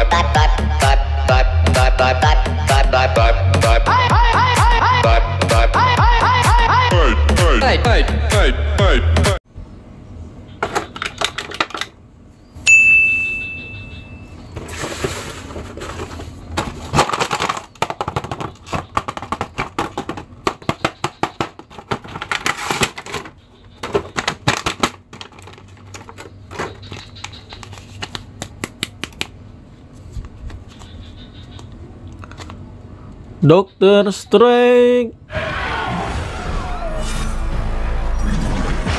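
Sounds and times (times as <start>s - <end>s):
bright ding: 12.6s - 14.3s
plastic packaging crinkling and clicking: 15.6s - 29.3s.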